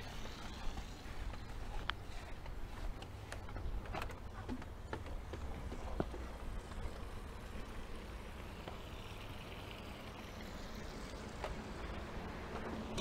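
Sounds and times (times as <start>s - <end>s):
footsteps on decking: 0.0s - 7.1s
low steady rumble: 0.0s - 13.0s.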